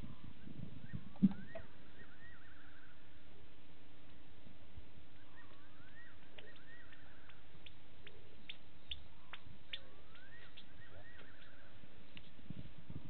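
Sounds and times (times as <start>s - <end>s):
whistled animal call: 0.8s - 3.0s, 5.2s - 7.3s, 9.3s - 11.8s.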